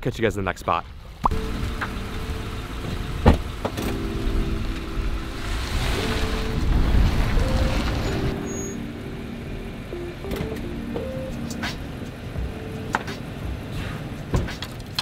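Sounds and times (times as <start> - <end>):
vehicle engine rumble: 0.9 - 15.0
car door shutting: 2.8 - 4.9, 10.2 - 11.8.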